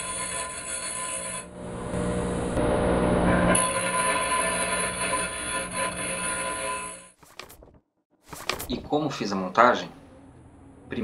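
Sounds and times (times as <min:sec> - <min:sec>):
grinder motor hum: 0:00.0 - 0:07.1
grinder grinding metal rod: 0:00.0 - 0:07.2.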